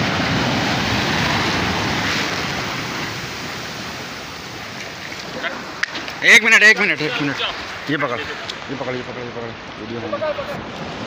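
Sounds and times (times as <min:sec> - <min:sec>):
surf washing over rocks: 0:00.0 - 0:11.0.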